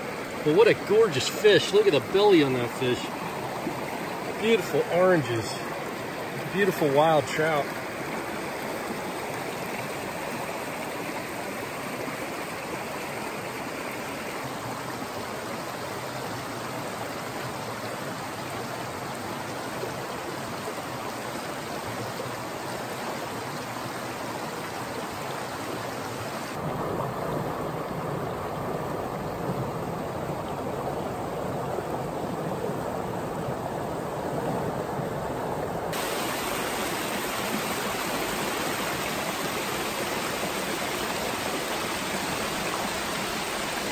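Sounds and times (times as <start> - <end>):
creek water over rocks: 0.0 - 43.9.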